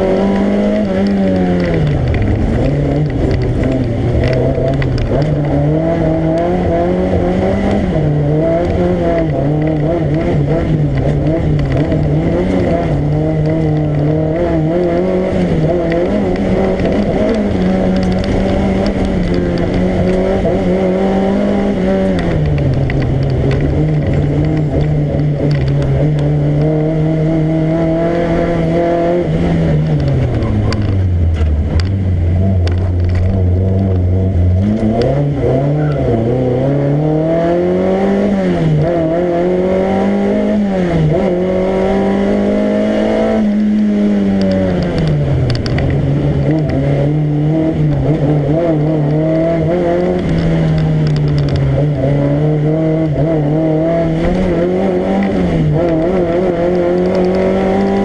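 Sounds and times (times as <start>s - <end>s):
rally car engine revving: 0.0s - 58.0s.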